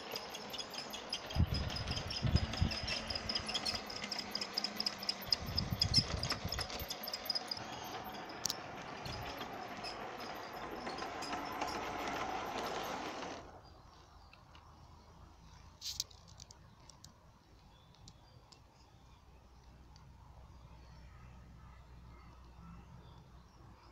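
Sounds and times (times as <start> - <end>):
toy train motor whir: 0.0 - 13.5
rapid ticking of wheels and gears: 0.0 - 13.6.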